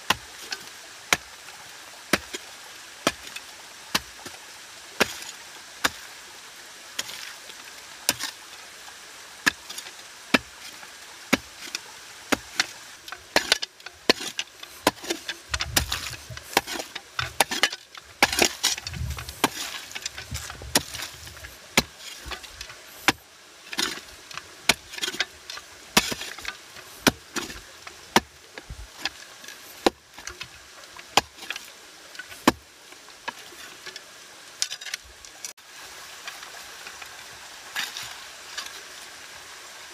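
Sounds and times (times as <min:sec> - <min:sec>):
shovel chopping wet soil: 0:02.1 - 0:02.4, 0:05.0 - 0:06.0, 0:08.1 - 0:08.4, 0:09.4 - 0:30.5, 0:31.1 - 0:32.6
dull low thuds: 0:18.8 - 0:19.6.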